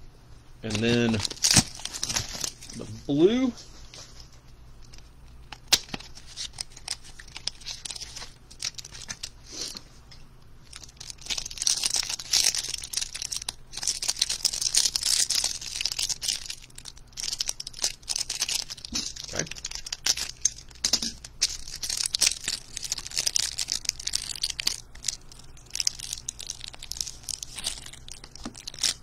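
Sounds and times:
wrapper tearing and crinkling: 0.6 - 3.0, 4.8 - 9.8, 10.6 - 29.0.

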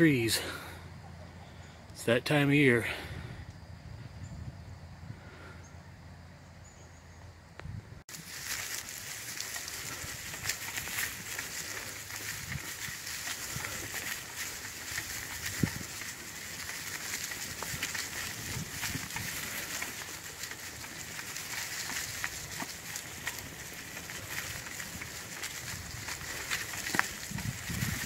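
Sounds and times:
bicycle tyres rolling over leaves: 8.1 - 28.0.

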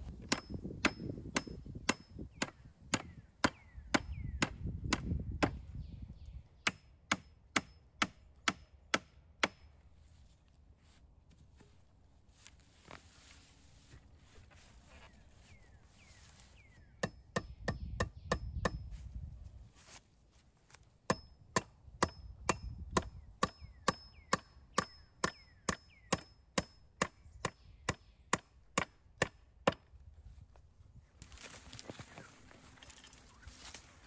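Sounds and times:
hatchet hammering a nail: 0.2 - 5.6, 6.6 - 9.6, 17.0 - 18.8, 21.1 - 29.8.

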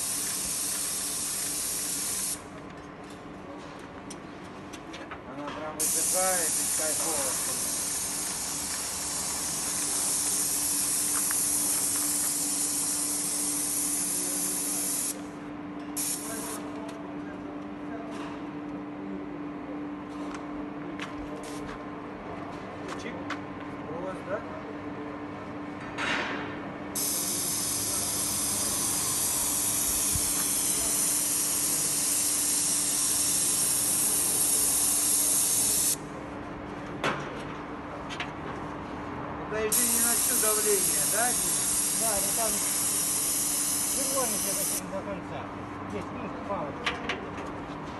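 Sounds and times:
paint sprayer hissing: 0.0 - 2.5, 5.8 - 15.2, 16.0 - 16.6, 27.0 - 36.0, 39.7 - 44.8.

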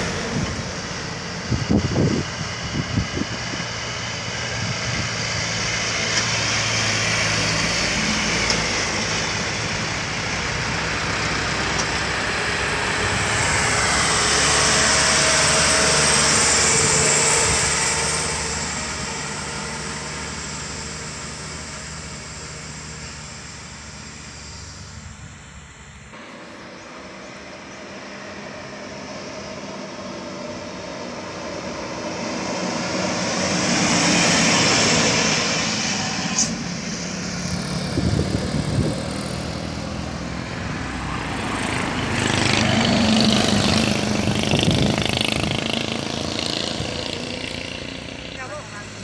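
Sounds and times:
truck engines running: 0.0 - 49.0.

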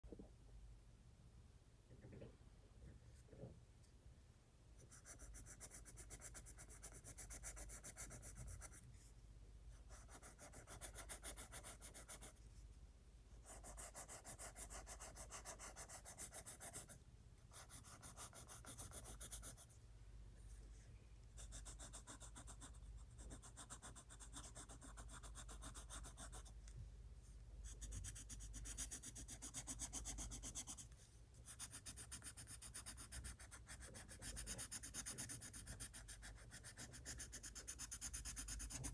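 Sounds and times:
pencil shading on paper: 5.0 - 8.8, 9.8 - 12.4, 13.4 - 19.8, 21.4 - 26.6, 27.7 - 30.9, 31.5 - 38.9.

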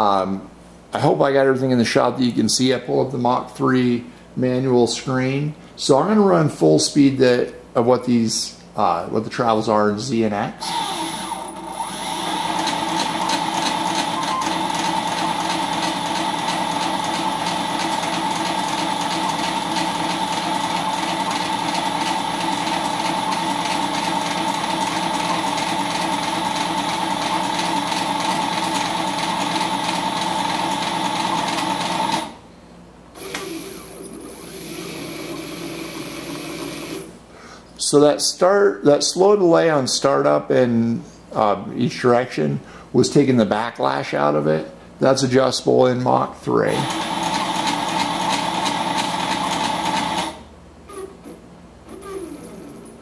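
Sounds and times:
lathe motors whining: 10.6 - 32.4.

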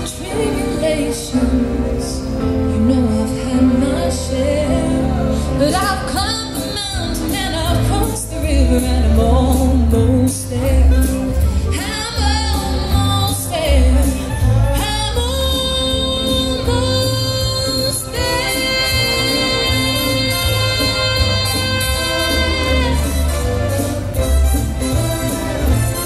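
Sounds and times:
woman singing into microphone: 0.0 - 23.8
music with bass line and beat: 6.9 - 26.0.

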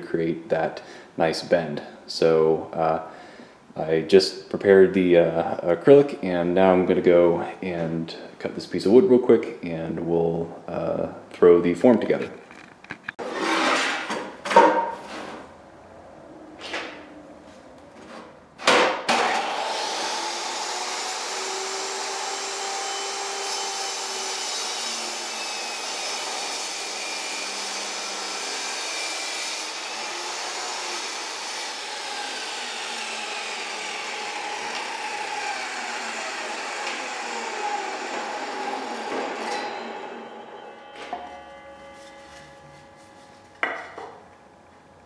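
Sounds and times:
table saw motor whine: 19.1 - 44.6.

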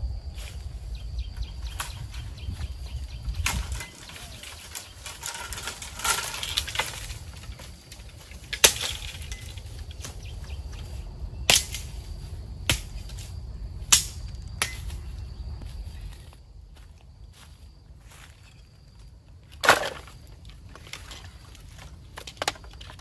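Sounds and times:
brush rustling: 0.2 - 13.5
wood cracking: 3.3 - 10.7, 19.6 - 23.0.

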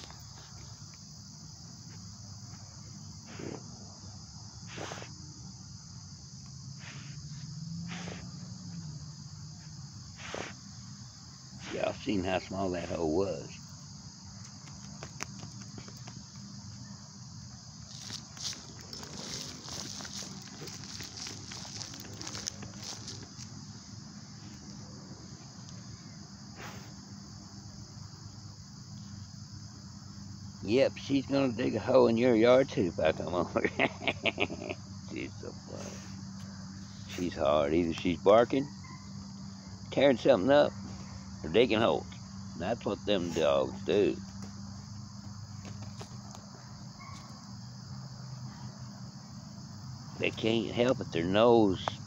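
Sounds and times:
high-pitched insect drone: 0.0 - 52.0
dog sniffing: 3.2 - 3.6, 4.7 - 5.1, 7.9 - 8.5, 9.7 - 10.6, 26.5 - 27.1, 35.8 - 36.2
dog paws scratching soil: 9.6 - 10.6, 11.5 - 27.1, 34.4 - 38.6, 39.9 - 47.4.

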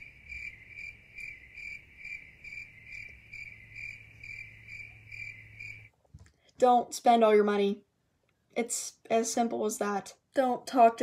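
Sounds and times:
crickets chirping: 0.0 - 6.0.

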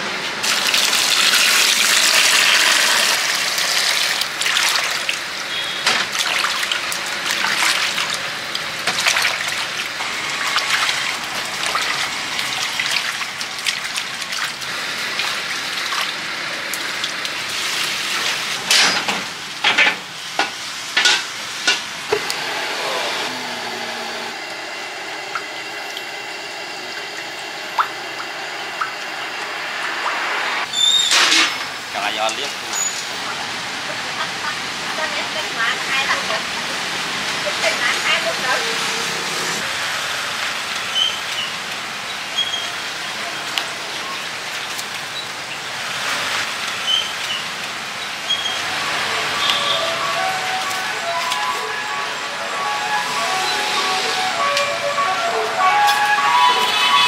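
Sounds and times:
water running and splashing: 0.4 - 19.6, 31.4 - 51.6.

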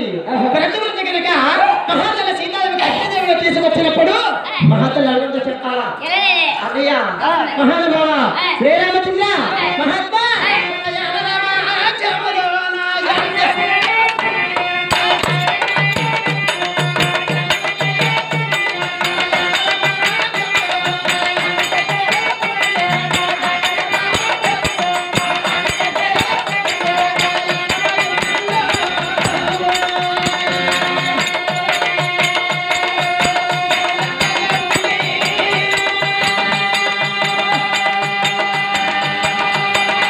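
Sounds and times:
hand drum beat: 13.1 - 40.0.

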